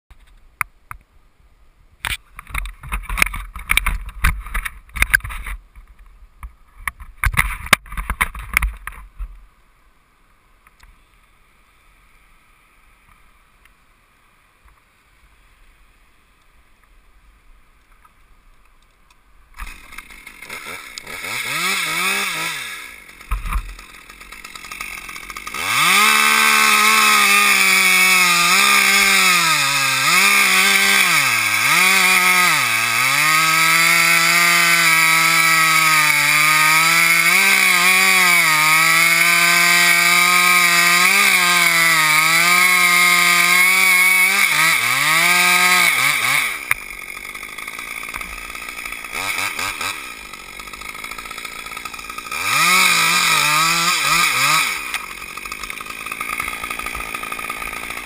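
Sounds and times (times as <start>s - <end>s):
chainsaw revving and cutting: 19.6s - 58.0s.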